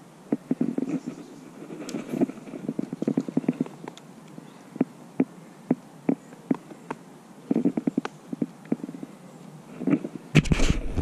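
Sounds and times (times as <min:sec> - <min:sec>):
faint hiss: 0:00.0 - 0:11.0.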